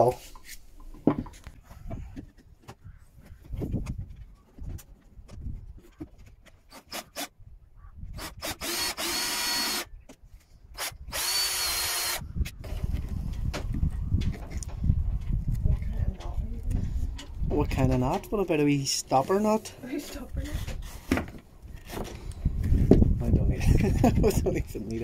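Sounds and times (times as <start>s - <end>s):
light knocks and handling: 0.3s - 6.6s
cordless drill whining: 8.2s - 9.9s, 10.8s - 12.3s.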